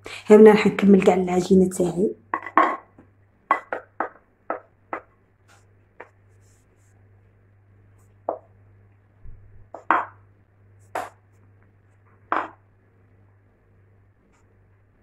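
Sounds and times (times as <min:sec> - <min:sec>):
rolling pin knocking on tile: 0:02.3 - 0:05.1, 0:08.3 - 0:08.5, 0:09.7 - 0:10.2, 0:10.9 - 0:11.2, 0:12.3 - 0:12.6.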